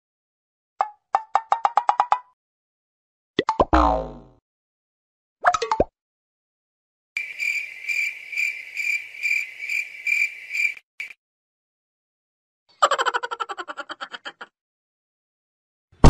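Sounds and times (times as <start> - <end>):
cartoon bounce effect: 3.4 - 4.4
cricket chirping: 7.2 - 11.2.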